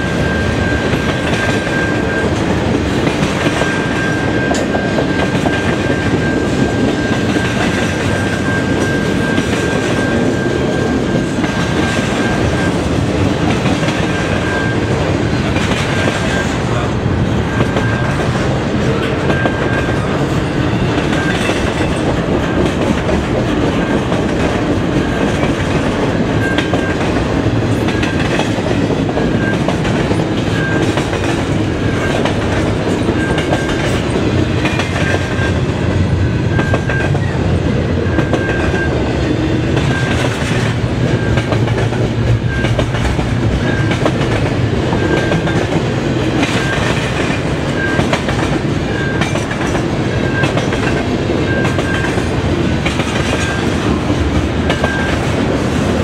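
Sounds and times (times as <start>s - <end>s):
crossing signal bell ringing: 0.0s - 40.4s
freight train rumbling past: 0.0s - 56.0s.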